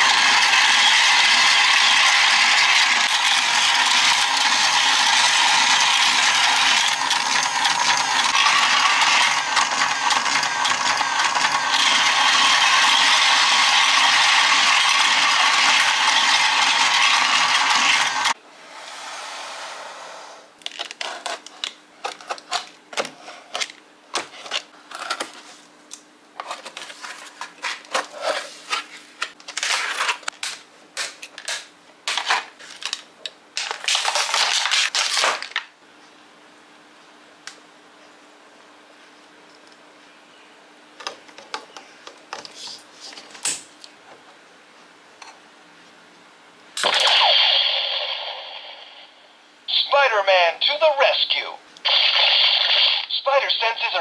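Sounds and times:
toy escalator ratcheting clatter: 0:00.0 - 0:18.3
packaging crinkling and clicking: 0:31.2 - 0:35.7.

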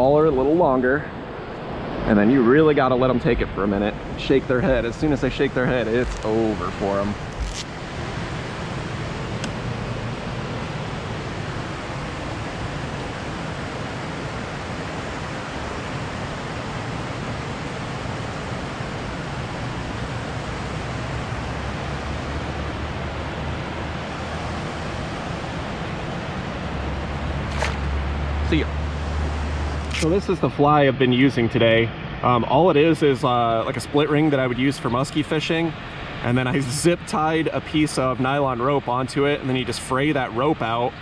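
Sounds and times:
turbulent river water rushing: 0:00.0 - 0:30.5.

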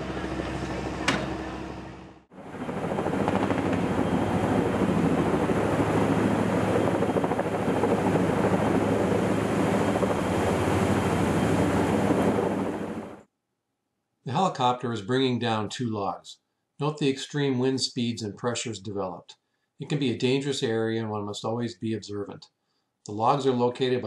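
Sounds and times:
helicopter rotor chopping: 0:00.0 - 0:13.2.

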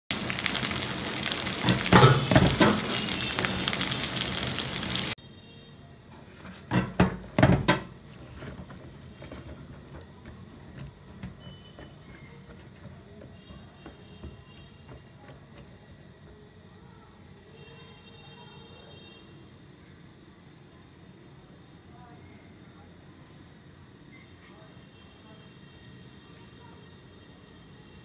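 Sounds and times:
tap running into bowl: 0:01.6 - 0:03.0.

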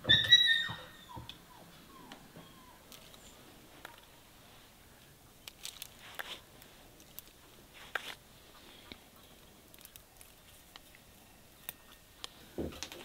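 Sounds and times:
stems snapping and rustling: 0:02.9 - 0:04.1, 0:05.0 - 0:13.0.

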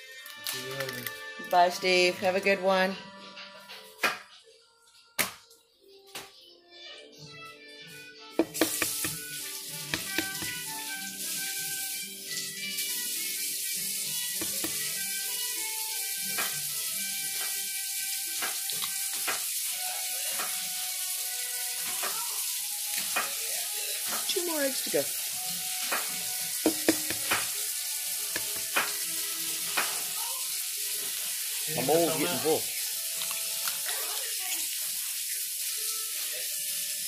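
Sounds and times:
eggshells cracking: 0:00.2 - 0:01.3, 0:33.0 - 0:34.0
kitchen clicks and taps: 0:08.4 - 0:09.2, 0:09.8 - 0:10.7, 0:14.3 - 0:14.9, 0:25.8 - 0:27.6, 0:28.2 - 0:29.0.

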